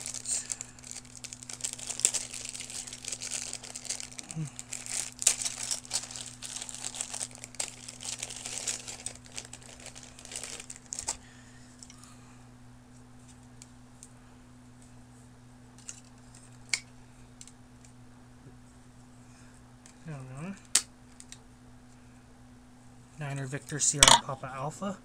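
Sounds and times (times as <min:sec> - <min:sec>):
plastic packaging crinkling: 0:00.0 - 0:11.2.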